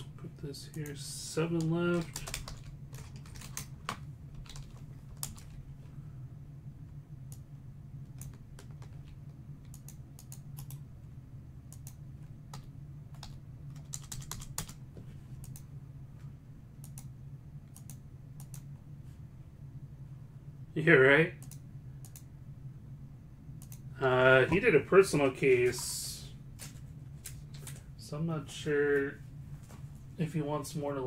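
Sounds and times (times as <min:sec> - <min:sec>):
low steady hum: 0:00.0 - 0:31.0
keyboard typing: 0:01.5 - 0:05.6, 0:08.1 - 0:10.8, 0:11.7 - 0:14.8.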